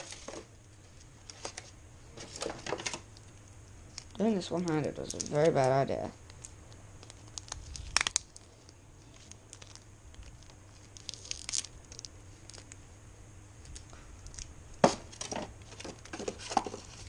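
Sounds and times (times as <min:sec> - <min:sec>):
plastic packaging crinkling: 0:01.2 - 0:12.8.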